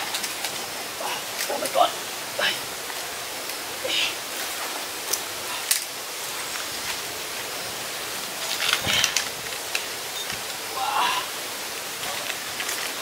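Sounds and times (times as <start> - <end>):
steady outdoor hiss: 0.0 - 13.0
light clicks and rustles: 8.4 - 10.6, 12.0 - 13.0.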